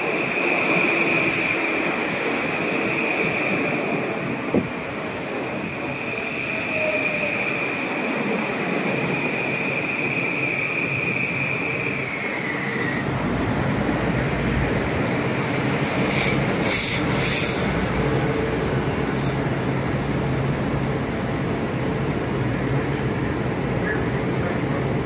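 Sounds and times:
electric train whine: 0:00.0 - 0:25.0
train hum: 0:00.0 - 0:25.0.

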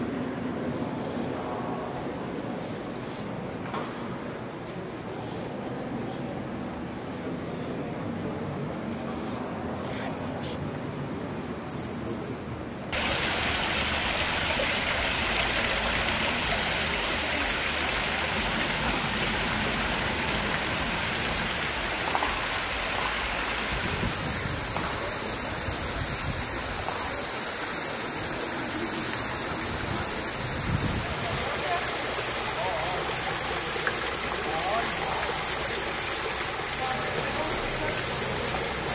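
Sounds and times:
fountain water splashing: 0:12.9 - 0:38.9.

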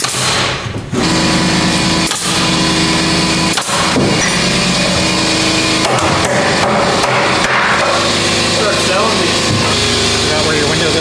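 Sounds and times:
nailer sharp cracks: 0:00.0 - 0:00.6, 0:03.4 - 0:04.4, 0:05.8 - 0:08.0
air compressor motor humming: 0:00.0 - 0:11.0.

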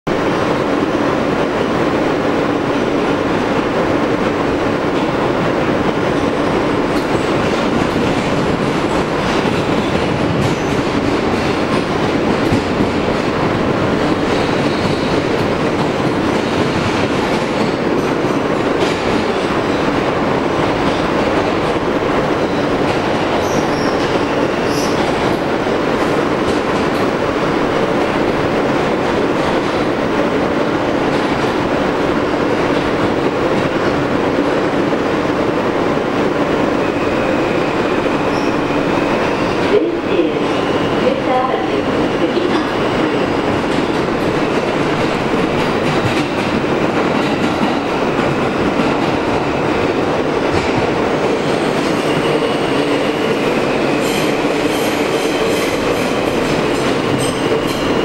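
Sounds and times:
subway wheels rumbling on rail: 0:00.0 - 0:58.0
high wheel squeals: 0:38.2 - 0:39.6.

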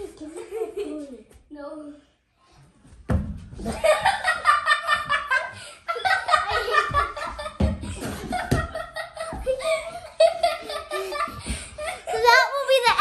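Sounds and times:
dull thumps: 0:03.0 - 0:04.3
girls laughing and shrieking: 0:03.7 - 0:13.0.

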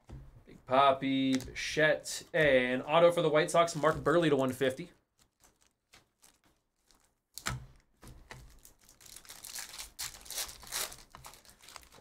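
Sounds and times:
foil wrapper tearing and crinkling: 0:03.6 - 0:07.6, 0:08.3 - 0:12.0.

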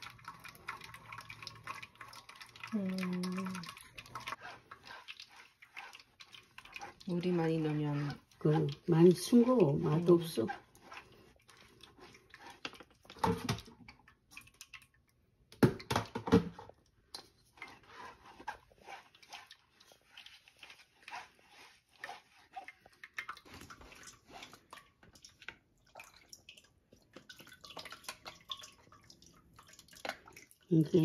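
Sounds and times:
wet scraping through sieve: 0:03.4 - 0:13.5, 0:17.5 - 0:24.9.

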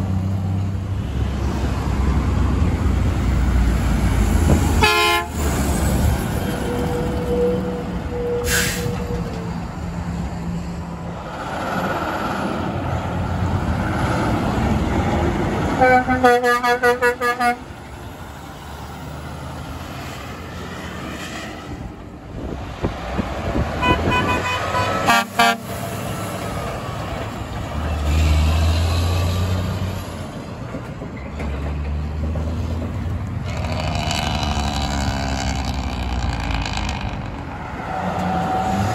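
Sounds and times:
diesel truck engines: 0:00.0 - 0:38.9
passing traffic: 0:00.0 - 0:38.9
higher-pitched air horn toots: 0:04.8 - 0:05.5, 0:23.8 - 0:25.8
truck air horn blasts: 0:04.8 - 0:05.5, 0:15.8 - 0:17.7, 0:23.8 - 0:25.8.

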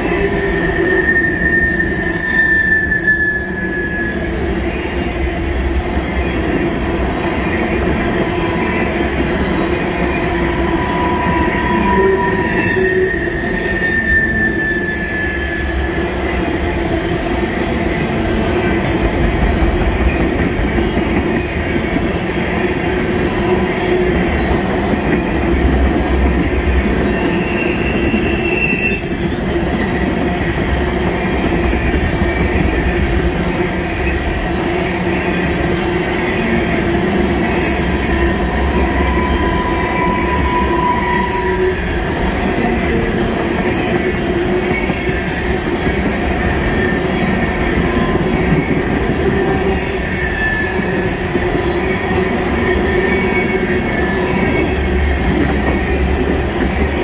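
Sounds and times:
train wheels rumbling on rail: 0:00.0 - 0:57.0
wheel squeals: 0:00.4 - 0:06.8, 0:09.2 - 0:16.0, 0:33.1 - 0:55.7.

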